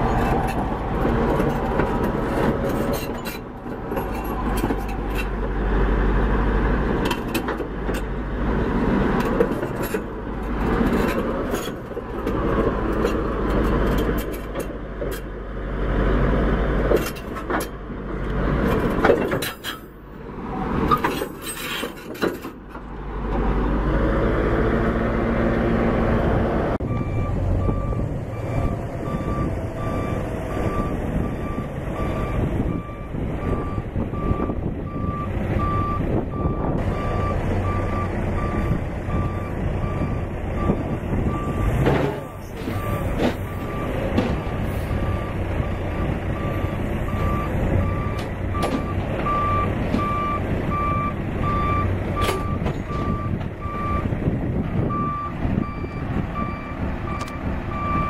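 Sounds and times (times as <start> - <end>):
knocks and clanks: 18.6 - 20.0, 20.8 - 22.9, 41.7 - 44.7, 48.1 - 50.4
heavy diesel engine running: 22.5 - 58.0.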